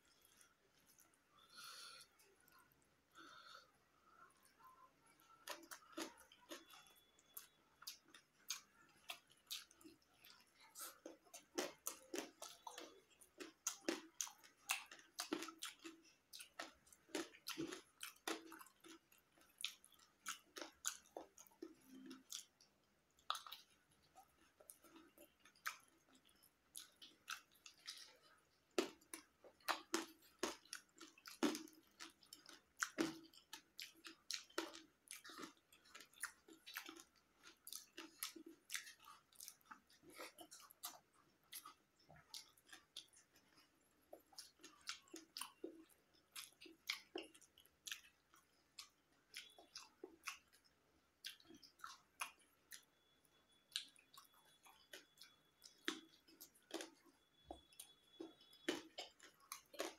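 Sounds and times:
close chewing of food: 0.0 - 59.9
wet mouth clicks and lip smacks: 28.8 - 52.9, 53.7 - 59.9.

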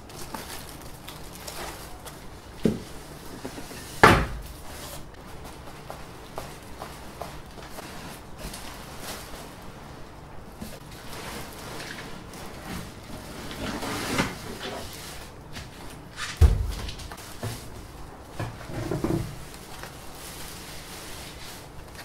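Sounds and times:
foam and plastic wrap rustling: 0.0 - 22.0
cardboard box scraping and rustling: 10.7 - 16.4.

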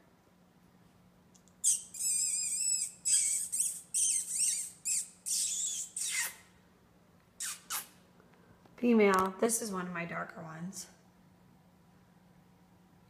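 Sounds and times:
puppies squealing and whining: 1.6 - 6.5.

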